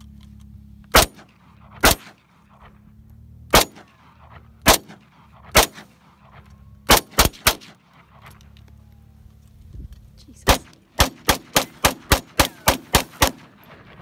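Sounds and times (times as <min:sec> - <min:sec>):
rifle shots: 0:00.9 - 0:02.8, 0:03.5 - 0:08.4, 0:10.4 - 0:14.0.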